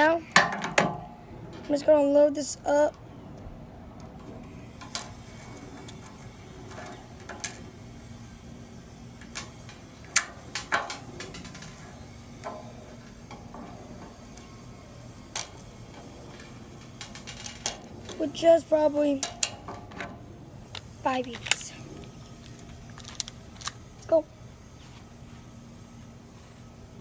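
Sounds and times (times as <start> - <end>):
pellets loaded into a gun clicking: 22.4 - 23.8.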